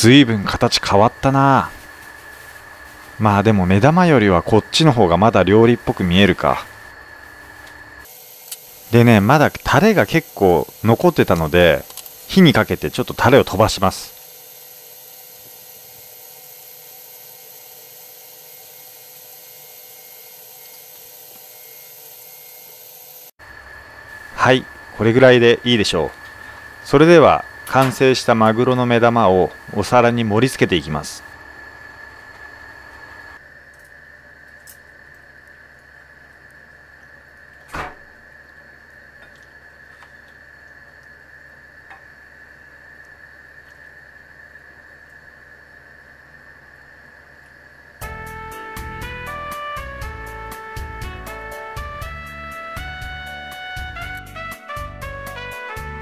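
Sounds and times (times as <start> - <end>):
steady hiss with high whine: 0.0 - 53.9
sauce boiling in a frying pan: 30.8 - 48.0.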